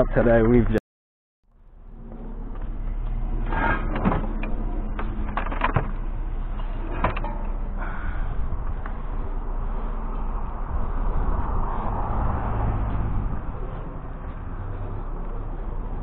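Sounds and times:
vehicle low rumble: 1.4 - 16.0
sharp clicks and knocks: 2.5 - 7.6.

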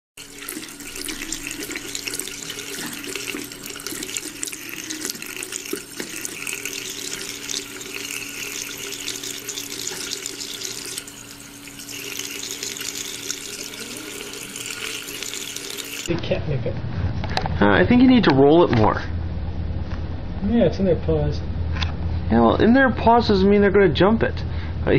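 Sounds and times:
faucet running into sink: 0.2 - 16.1.

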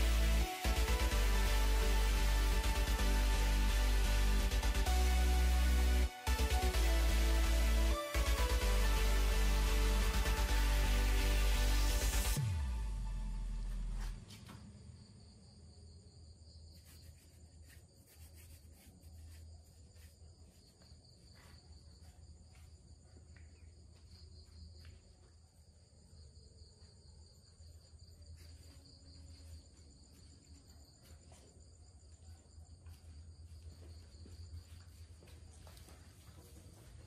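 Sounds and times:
low hum: 8.7 - 15.4.

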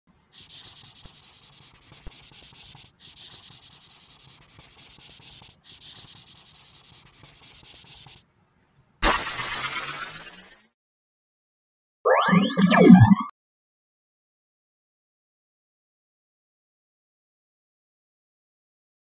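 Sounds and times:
pencil scribbling on paper: 0.3 - 8.2.

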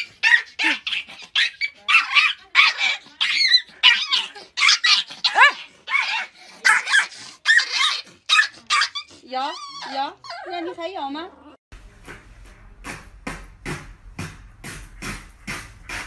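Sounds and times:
puppy yapping: 0.0 - 10.7.

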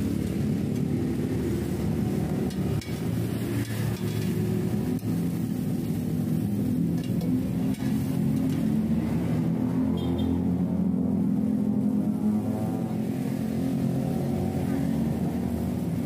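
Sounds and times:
metal spatula clicking on griddle: 2.4 - 5.2, 6.9 - 8.7.

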